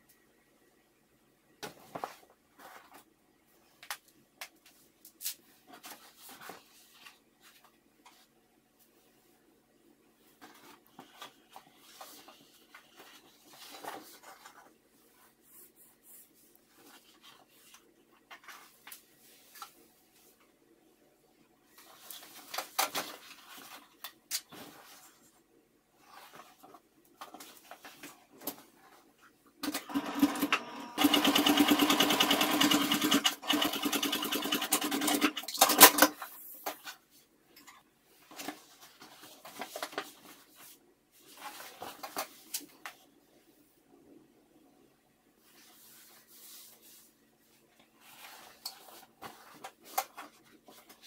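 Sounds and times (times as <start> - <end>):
sewing machine stitching: 29.6 - 36.0.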